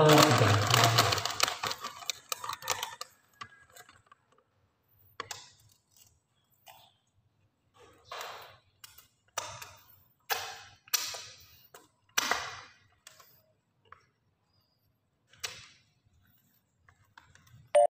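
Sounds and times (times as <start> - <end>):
crackers crunching while chewed: 0.0 - 4.4.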